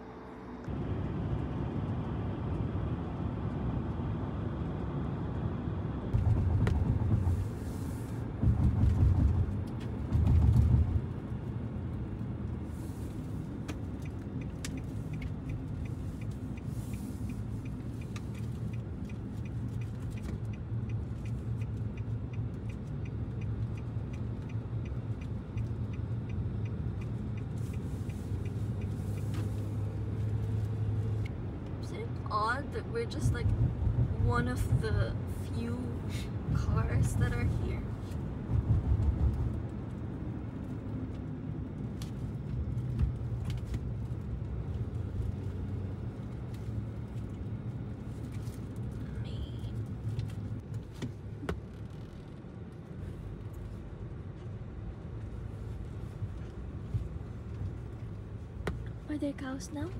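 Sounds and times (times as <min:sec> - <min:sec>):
car engine and tyres rumbling: 0:00.0 - 0:59.9
turn indicator ticking: 0:13.4 - 0:31.8.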